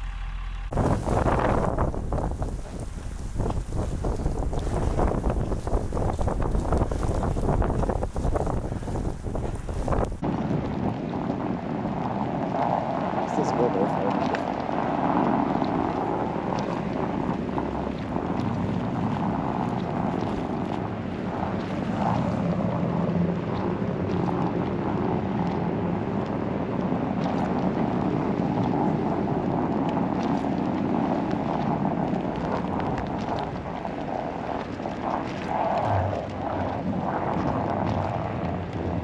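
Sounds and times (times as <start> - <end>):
car engine and tyre noise: 0.0 - 10.2
wind noise on microphone: 0.7 - 39.0.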